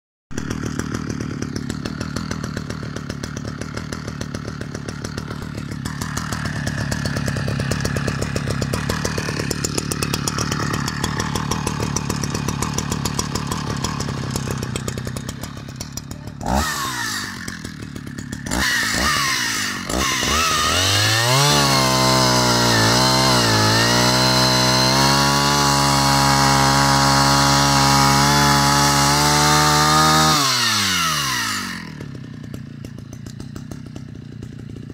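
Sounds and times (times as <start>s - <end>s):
chainsaw engine idling and revving: 0.3s - 34.9s.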